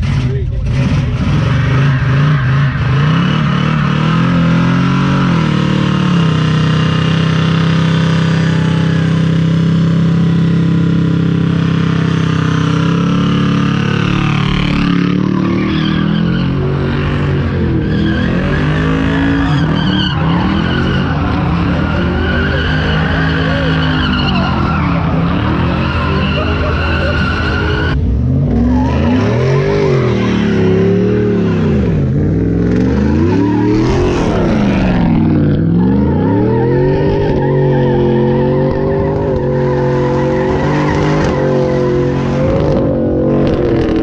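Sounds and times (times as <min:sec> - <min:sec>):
tires squealing on pavement: 0:00.0 - 0:32.0, 0:32.7 - 0:44.0
car engine revving high: 0:00.0 - 0:44.0.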